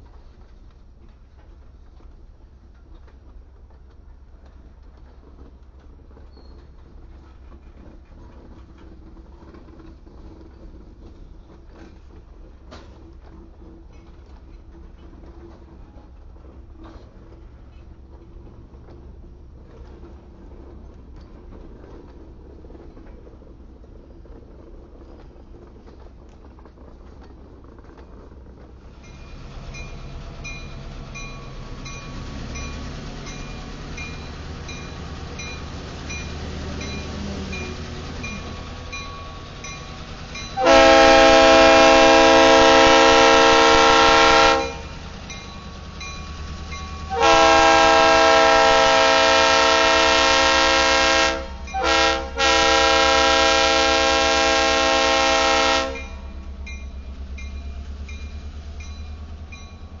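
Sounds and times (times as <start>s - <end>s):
diesel engine running low: 28.4s - 52.4s
locomotive air horn: 40.6s - 44.9s, 47.1s - 56.3s.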